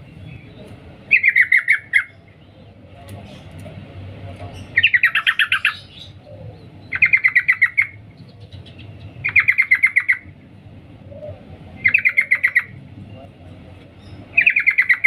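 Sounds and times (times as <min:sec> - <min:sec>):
bird chattering call: 0:01.1 - 0:03.6, 0:04.6 - 0:10.4, 0:11.2 - 0:12.8, 0:14.0 - 0:15.0.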